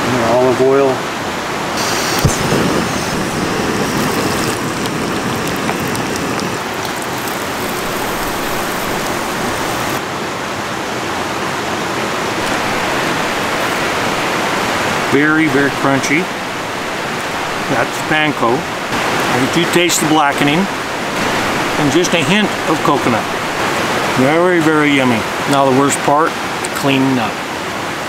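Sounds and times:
river water rushing: 0.2s - 28.0s
fish sizzling in a pan: 1.8s - 10.0s.

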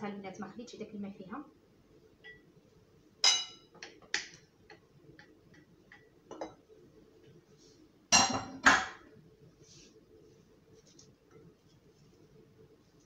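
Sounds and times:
utensils clinking on glass bowl: 3.2s - 3.7s.

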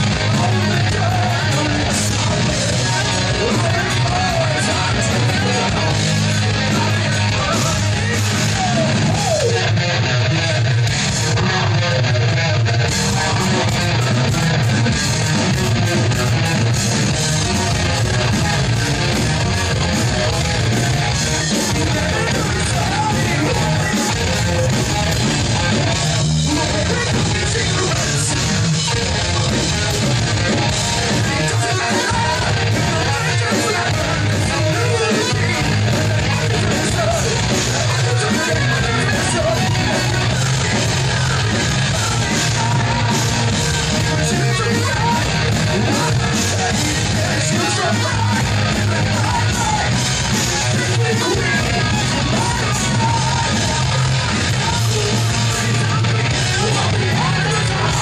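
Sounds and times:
person singing into microphone: 0.0s - 9.8s, 20.6s - 29.0s, 31.1s - 58.0s
electric guitars: 0.0s - 58.0s.

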